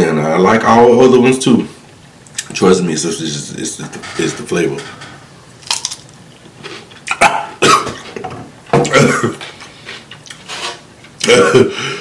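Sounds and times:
man chewing cucumber crunching: 5.5 - 7.5.

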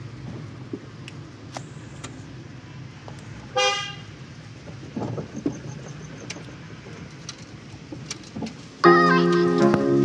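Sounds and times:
car driving low rumble: 0.0 - 10.0.

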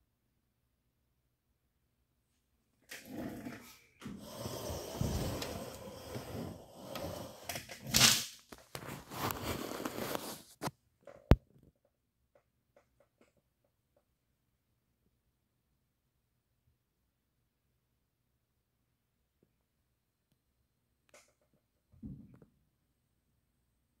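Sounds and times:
hand rubbing and rustling on case: 8.6 - 10.7.

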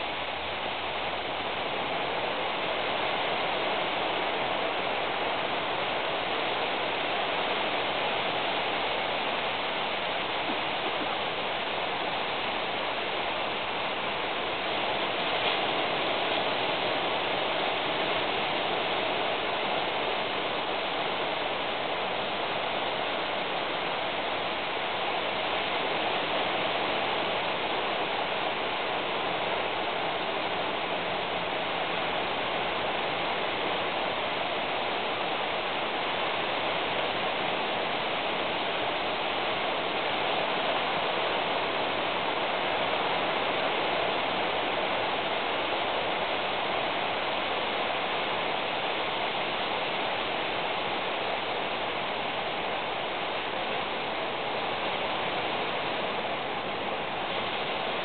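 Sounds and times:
steady rain: 0.0 - 58.0.

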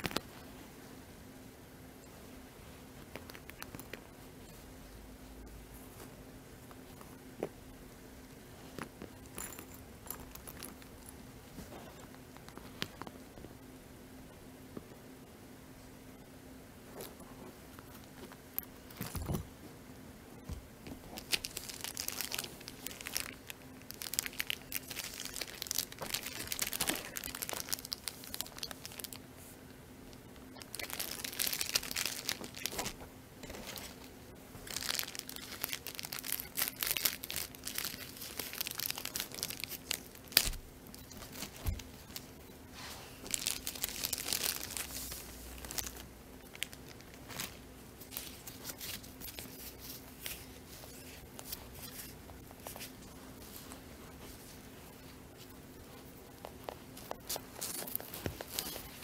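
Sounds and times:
faint steady hum: 0.0 - 59.0
plastic packaging crinkling: 9.1 - 13.1, 20.9 - 29.3, 30.5 - 42.5, 43.2 - 55.1, 55.8 - 59.0.

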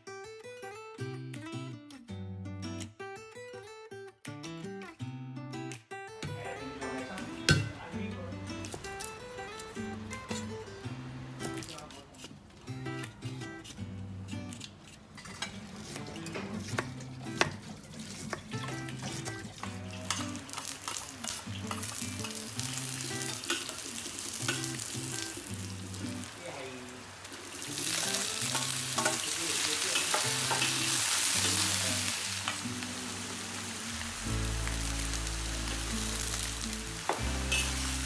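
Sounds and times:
light background music: 6.0 - 11.9, 15.8 - 26.7, 27.8 - 38.0
food sizzling in hot oil: 8.6 - 12.0, 15.2 - 38.0
metal spatula stirring in wok: 13.6 - 25.9, 27.4 - 32.7, 37.5 - 37.9
knife chopping on wooden board: 16.4 - 17.6.

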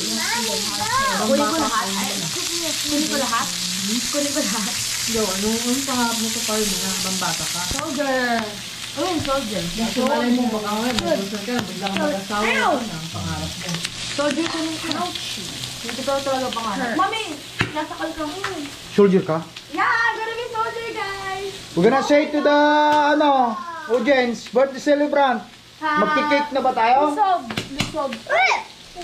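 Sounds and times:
voices chattering: 0.0 - 18.7
meat sizzling on a grill: 0.0 - 29.0.

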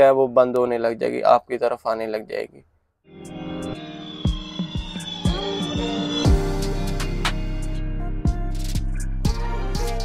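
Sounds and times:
sharp notes falling in pitch: 3.1 - 7.8
low drone: 3.1 - 8.1.

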